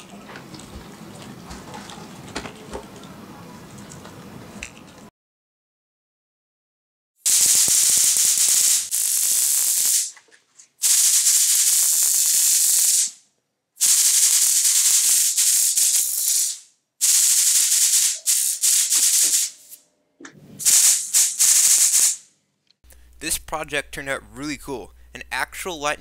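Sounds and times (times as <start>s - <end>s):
electric sparks crackling and buzzing: 7.3s - 10.2s, 10.8s - 13.2s, 13.8s - 19.8s, 20.6s - 22.2s.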